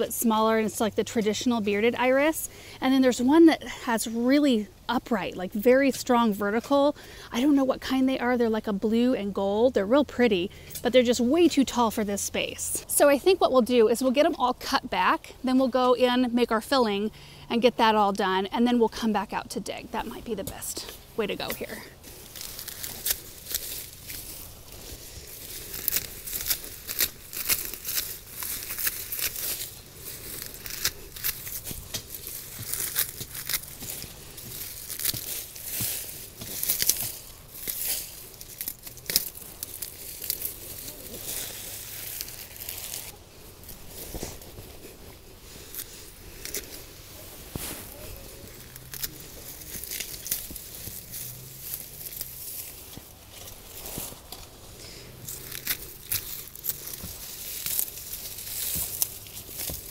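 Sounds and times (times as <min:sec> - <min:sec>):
leaves rustling and tearing: 0:20.0 - 0:59.9
pruners snipping: 0:20.0 - 0:59.9
pruner blades clicking: 0:25.4 - 0:41.0.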